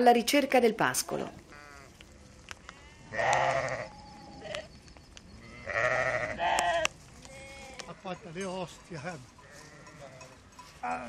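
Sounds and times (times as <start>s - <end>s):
sheep bleating: 1.5s - 4.7s, 5.4s - 8.2s, 9.4s - 11.0s.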